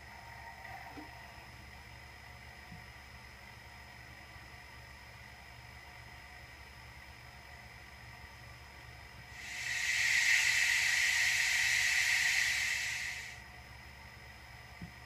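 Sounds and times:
steam hiss through small speaker: 9.3s - 13.4s.

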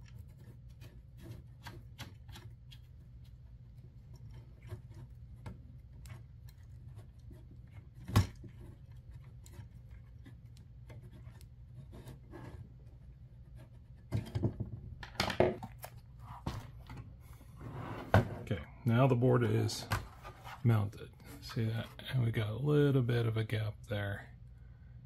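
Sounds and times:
hardware clattering on wooden table: 14.1s - 15.7s.

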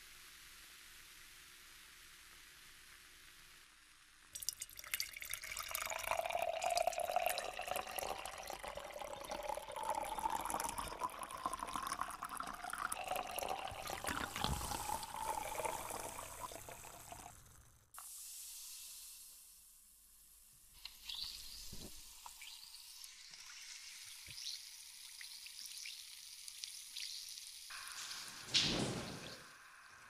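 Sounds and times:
shower water spraying: 13.6s - 16.5s, 20.8s - 30.0s.

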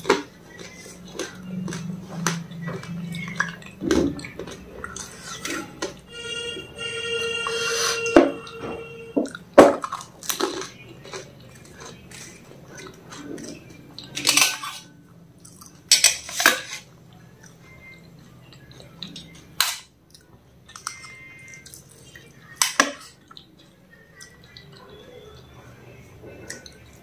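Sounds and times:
crunching and chewing: 0.0s - 6.1s, 9.2s - 27.0s
steel spoon clinking on plates: 14.1s - 14.9s, 15.9s - 16.8s.

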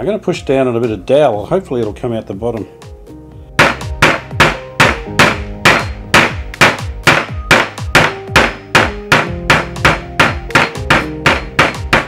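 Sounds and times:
hammer striking wooden dowel: 3.6s - 12.0s.

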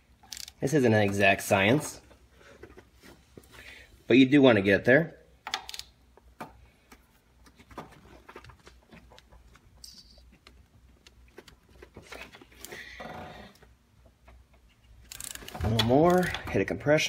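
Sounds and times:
hand wrench clicks: 0.2s - 0.6s, 5.5s - 5.9s, 15.1s - 15.5s.

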